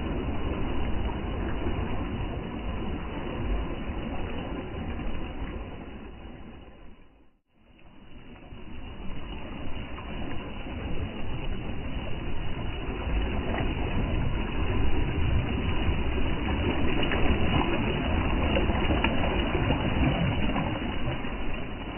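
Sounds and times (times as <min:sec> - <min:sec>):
small waves washing over sand: 0:07.7 - 0:21.9.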